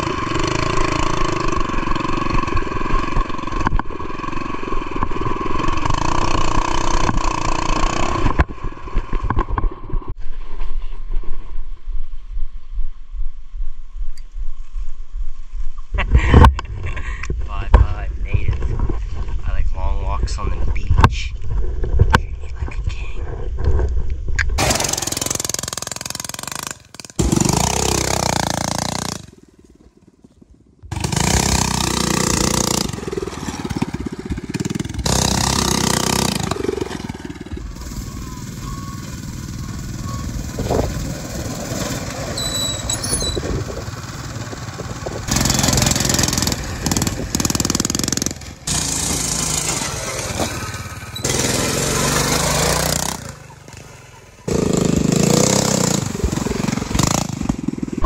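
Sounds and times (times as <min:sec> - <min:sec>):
mini bike engine running: 0:00.0 - 0:09.8, 0:24.6 - 0:29.4, 0:30.9 - 0:58.0.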